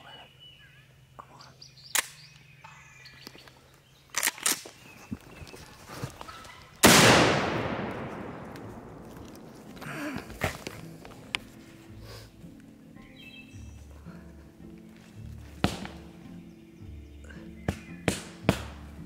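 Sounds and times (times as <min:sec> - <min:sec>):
sharp clicks: 0:01.8 - 0:02.5, 0:03.2 - 0:05.3, 0:06.8 - 0:09.8
shotgun shot echoing: 0:06.8 - 0:10.6, 0:15.6 - 0:16.1.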